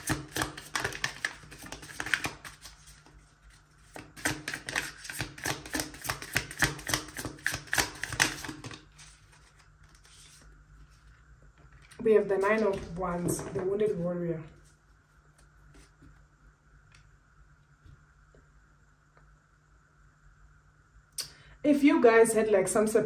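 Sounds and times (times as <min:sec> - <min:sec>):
cards being shuffled: 0:00.0 - 0:13.5.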